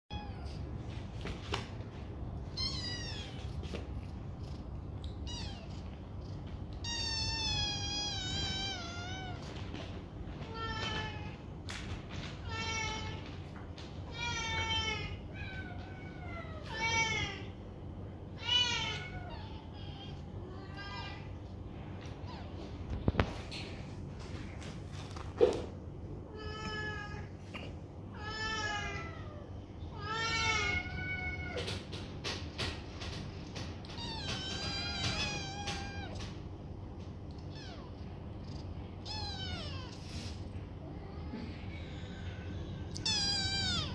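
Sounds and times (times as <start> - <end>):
low steady hum: 0.1 - 43.9
kittens meowing: 2.5 - 3.6, 5.1 - 6.0, 6.6 - 9.6, 33.9 - 36.4, 37.3 - 40.2, 40.8 - 43.9.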